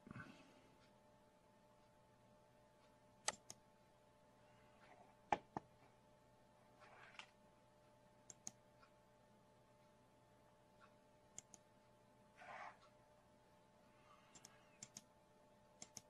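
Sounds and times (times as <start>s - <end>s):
faint steady hum: 0.0s - 16.0s
computer mouse clicks: 3.2s - 3.6s, 6.8s - 7.4s, 8.2s - 8.6s, 11.3s - 11.7s, 14.3s - 15.1s, 15.8s - 16.0s.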